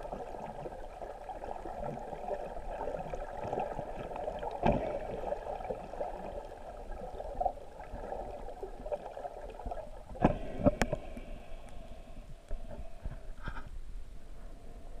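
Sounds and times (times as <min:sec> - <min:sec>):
muffled underwater water wash: 0:00.0 - 0:15.0
sharp knocks underwater: 0:04.4 - 0:05.3, 0:10.1 - 0:11.1.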